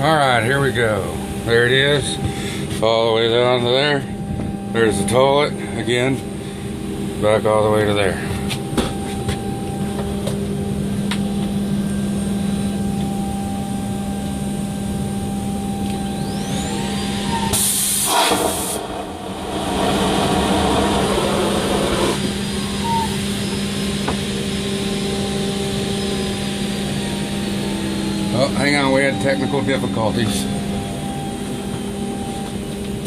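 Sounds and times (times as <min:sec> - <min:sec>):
steady cabin hum: 0:00.0 - 0:17.5, 0:18.1 - 0:33.0
vacuum toilet flushing: 0:17.5 - 0:22.5.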